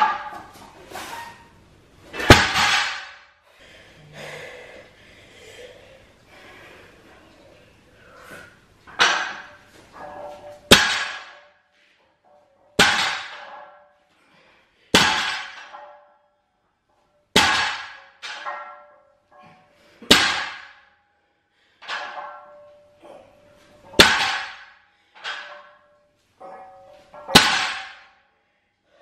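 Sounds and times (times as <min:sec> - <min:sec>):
weight plates ringing: 0:08.9 - 0:11.6, 0:15.0 - 0:16.3, 0:17.4 - 0:20.8, 0:21.8 - 0:28.2.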